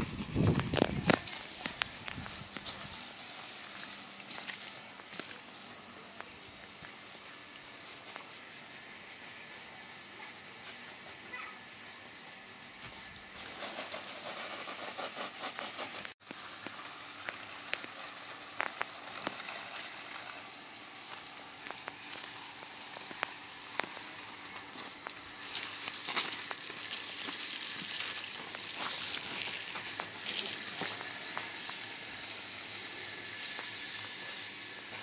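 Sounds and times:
garden hose spraying: 0.0s - 35.0s.

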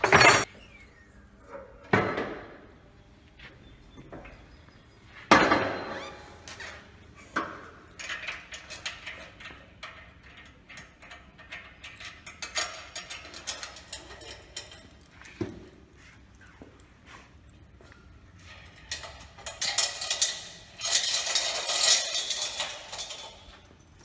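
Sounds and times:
chain links clinking and rattling: 0.0s - 0.5s, 7.9s - 24.0s.

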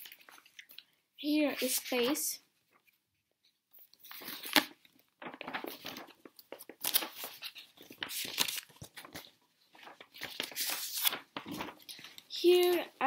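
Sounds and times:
paper pages rustling: 0.0s - 0.9s, 1.5s - 13.0s.

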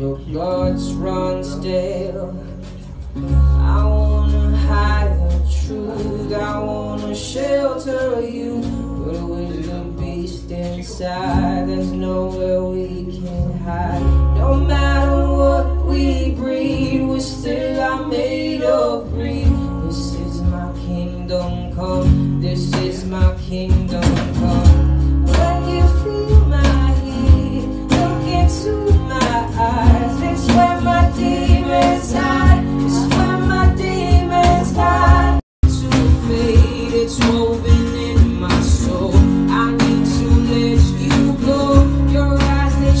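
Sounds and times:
man singing: 0.0s - 2.8s, 3.4s - 43.0s
acoustic guitar: 0.0s - 43.0s
percussion hits: 26.6s - 43.0s.

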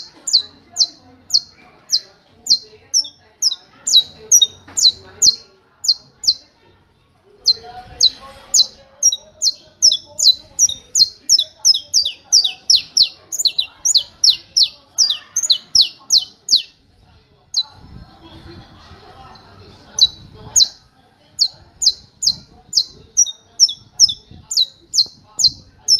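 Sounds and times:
finch singing sharp notes: 0.0s - 6.4s, 7.4s - 16.8s, 21.4s - 25.9s.

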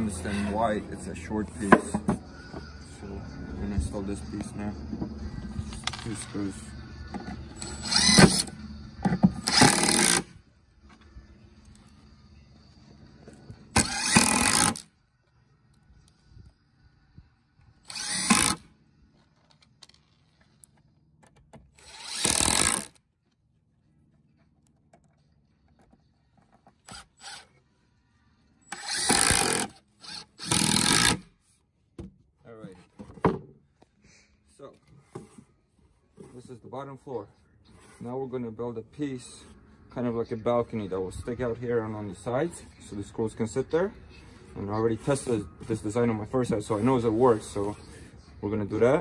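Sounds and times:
impact driver driving screws into wood: 7.6s - 10.3s, 13.7s - 14.9s, 17.9s - 18.7s, 21.6s - 23.0s, 26.8s - 27.5s, 28.7s - 31.3s.

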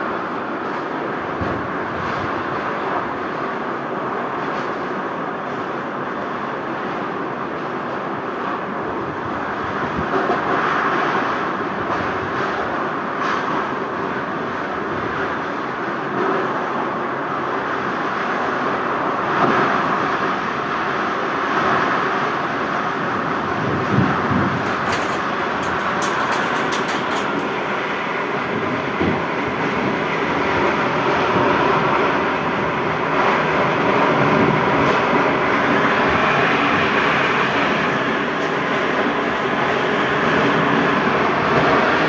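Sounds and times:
strong wind rushing: 22.8s - 32.8s.

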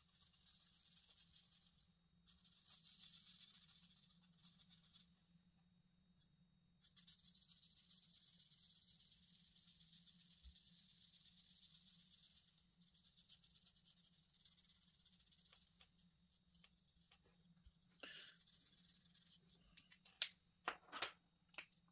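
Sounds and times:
marker scratching on paper: 0.0s - 5.2s, 6.8s - 17.4s, 18.0s - 19.5s.

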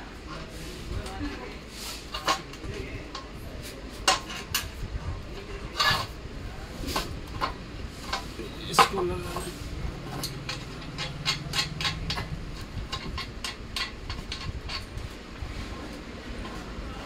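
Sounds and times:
metal parts knocking and clicking: 4.0s - 4.7s, 7.0s - 15.2s.

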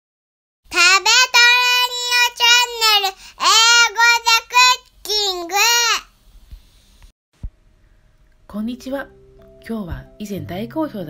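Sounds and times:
high voice singing a jingle: 0.7s - 6.0s.

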